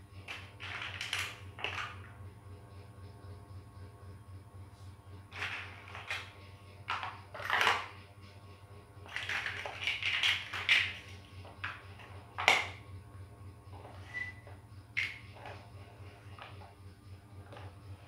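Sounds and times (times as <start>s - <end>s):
steady low hum: 0.0s - 18.0s
plastic toy blocks clattering: 0.3s - 2.1s, 5.3s - 6.3s, 6.9s - 7.9s, 9.0s - 11.8s, 12.4s - 12.8s.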